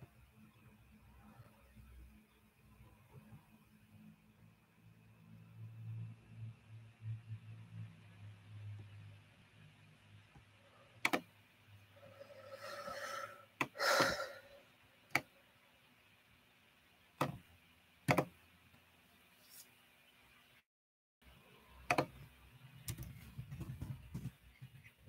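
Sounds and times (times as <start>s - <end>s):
man exhaling: 12.0s - 14.6s.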